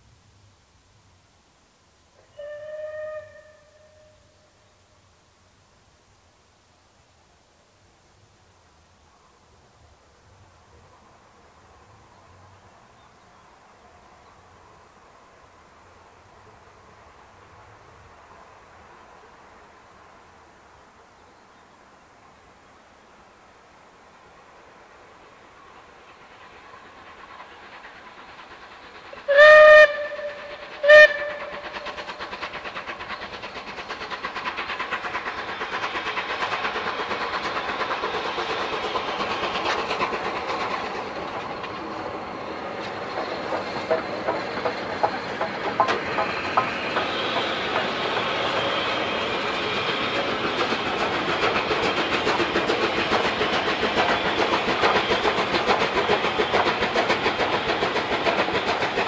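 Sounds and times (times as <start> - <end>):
steam locomotive whistle: 2.2 - 4.6, 29.2 - 32.2
steam locomotive running past: 2.2 - 59.0.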